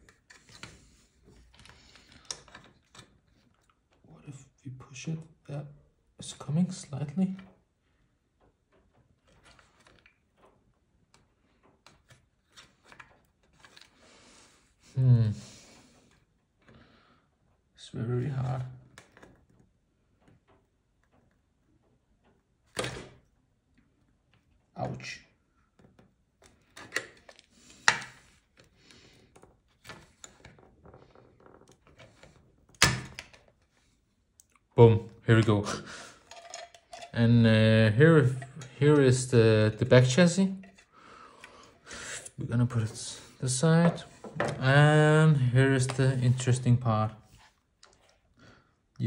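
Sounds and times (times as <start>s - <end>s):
plastic parts clicking and knocking: 0.0s - 4.1s, 18.4s - 34.7s, 35.3s - 41.9s, 43.6s - 44.8s.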